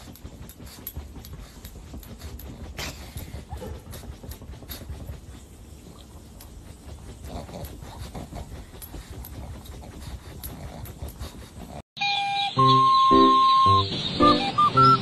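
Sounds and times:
dog breathing noisily and snorting: 0:00.0 - 0:11.9.

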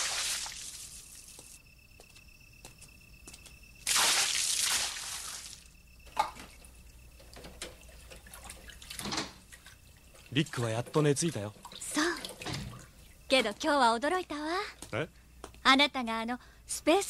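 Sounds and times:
water splashing in a tub: 0:00.0 - 0:01.0, 0:03.8 - 0:06.5, 0:07.4 - 0:13.1
water dripping: 0:02.6 - 0:13.8.

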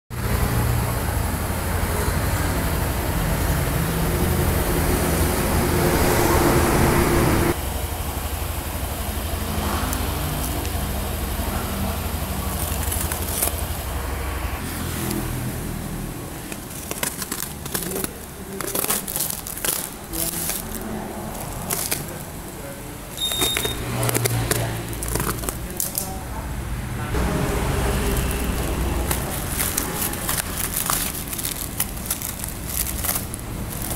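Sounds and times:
packing tape crinkling: 0:10.3 - 0:10.8, 0:12.1 - 0:13.8, 0:16.3 - 0:22.5, 0:23.1 - 0:26.2, 0:27.8 - 0:33.9.

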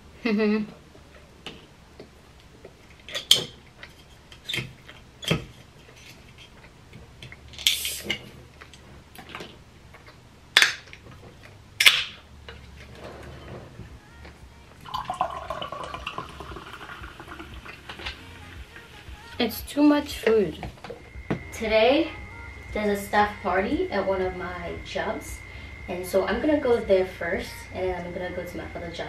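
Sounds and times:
can and straw clicking: 0:07.6 - 0:08.2
soda pouring and fizzing: 0:14.8 - 0:18.9.

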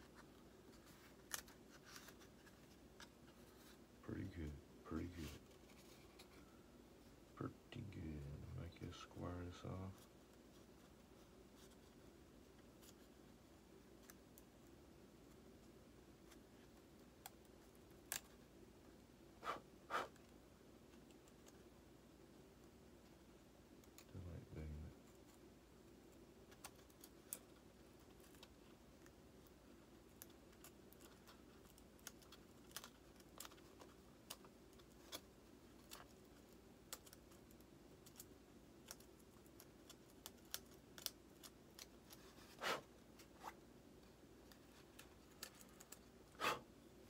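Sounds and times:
craft knife clicking and scratching foam: 0:26.4 - 0:43.6.

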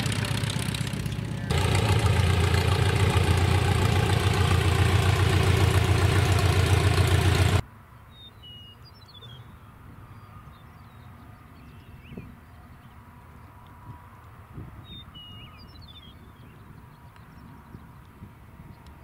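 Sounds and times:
light aircraft engine running: 0:00.0 - 0:07.6.

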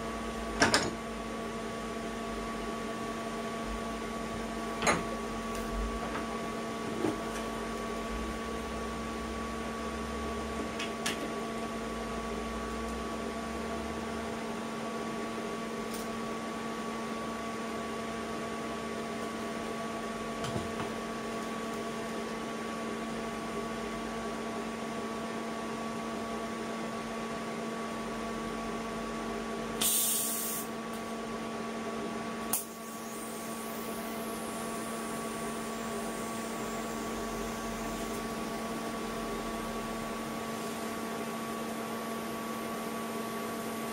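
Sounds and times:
electrical hum: 0:00.0 - 0:27.2, 0:27.8 - 0:43.9
welding arc hissing: 0:29.8 - 0:30.7.

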